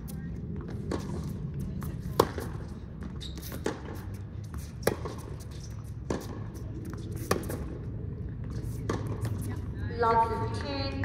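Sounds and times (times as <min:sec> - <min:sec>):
tennis ball hit by racquet: 0:00.9 - 0:02.6, 0:03.4 - 0:07.8, 0:08.5 - 0:09.6.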